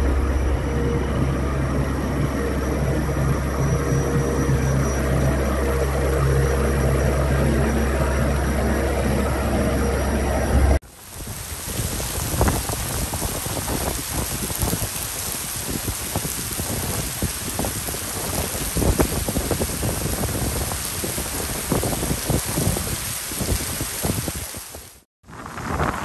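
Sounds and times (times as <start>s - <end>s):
raindrops spattering: 10.8s - 25.0s
heavy rain on paving: 10.8s - 26.0s.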